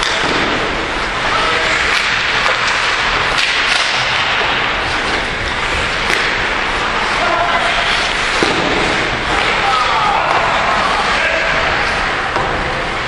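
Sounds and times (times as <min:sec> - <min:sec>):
hockey sticks and puck clacking: 0:00.0 - 0:13.0
skate blades scraping ice: 0:01.1 - 0:12.4.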